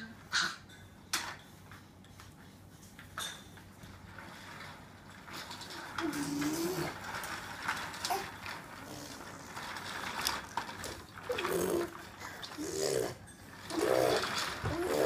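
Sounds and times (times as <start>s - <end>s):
baby walker rattling on tiles: 3.0s - 15.0s
baby cooing: 12.6s - 15.0s.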